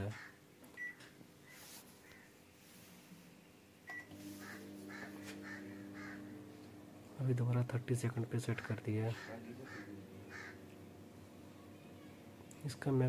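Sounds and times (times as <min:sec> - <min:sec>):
crows cawing: 0:00.1 - 0:00.4, 0:04.3 - 0:06.6, 0:08.6 - 0:10.8
microwave keypad beeps: 0:00.8 - 0:01.0, 0:03.9 - 0:04.1
microwave oven humming: 0:03.8 - 0:13.0.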